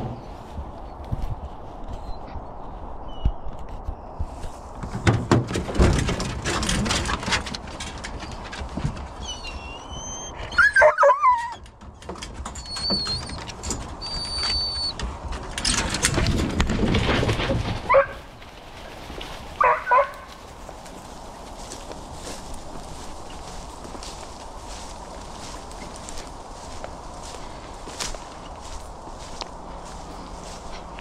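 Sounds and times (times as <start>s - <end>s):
rattling and knocking of metal box: 4.8s - 9.2s
dogs whining and yelping: 8.0s - 11.8s, 12.4s - 15.1s.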